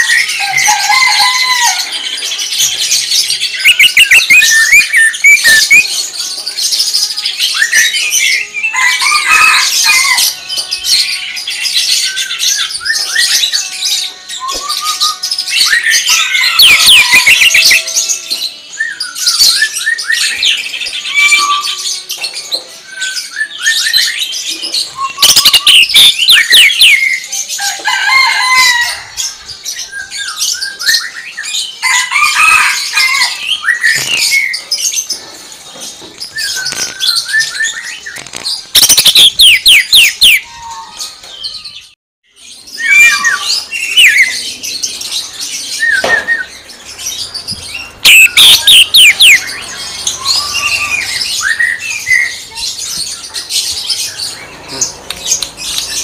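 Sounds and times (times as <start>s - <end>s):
bird singing varied song: 0.0s - 28.5s, 29.2s - 56.0s
rapid-fire sharp bird notes: 2.5s - 6.0s, 25.0s - 27.2s, 36.3s - 40.4s, 45.6s - 52.6s.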